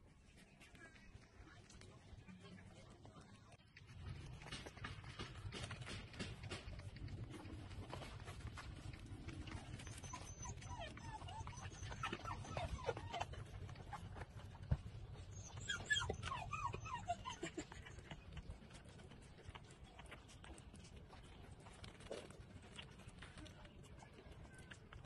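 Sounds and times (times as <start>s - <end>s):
puppies sucking and smacking: 0.0s - 25.0s
puppies whimpering: 9.2s - 14.3s, 15.0s - 18.4s.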